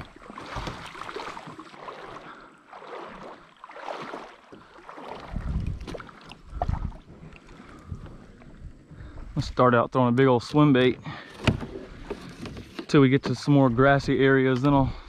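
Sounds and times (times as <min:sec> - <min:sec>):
water splashing around kayak: 0:00.0 - 0:15.0.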